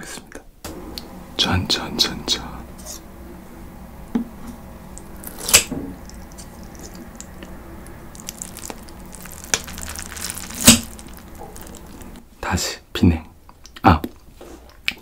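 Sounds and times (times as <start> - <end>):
wet squishing of noodles: 5.1 - 12.2.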